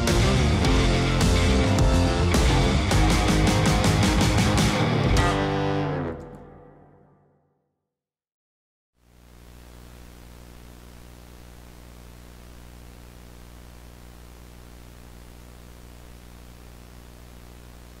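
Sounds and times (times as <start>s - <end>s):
low electrical hum: 9.0s - 18.0s
tape hiss: 9.0s - 18.0s.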